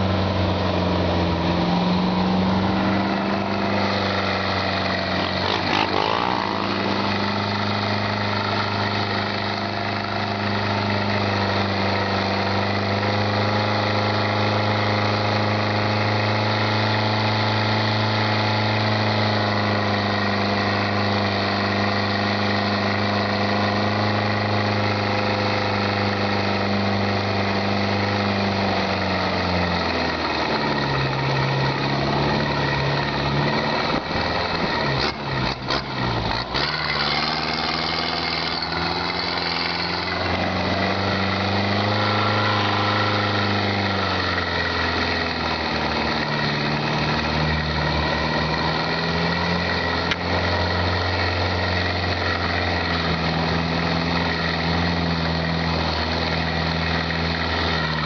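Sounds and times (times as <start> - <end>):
motorbike passing: 0.0 - 14.4, 28.7 - 58.0
jeep engine running: 0.0 - 58.0
road and wind rush: 0.0 - 58.0.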